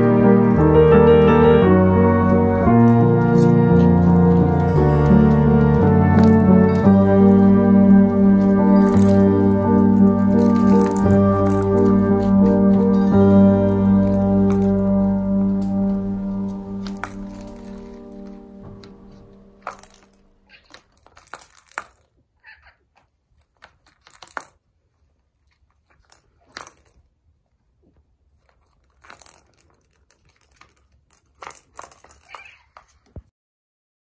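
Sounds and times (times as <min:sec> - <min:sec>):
background music: 0:00.0 - 0:20.4
high metallic jingling: 0:02.0 - 0:22.1, 0:28.4 - 0:32.7.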